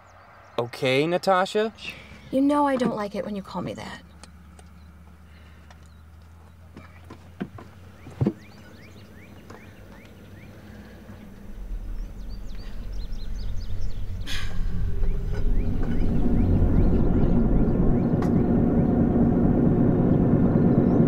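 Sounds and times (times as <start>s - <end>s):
birds chirping: 0.0s - 21.0s
train rumble: 5.8s - 21.0s.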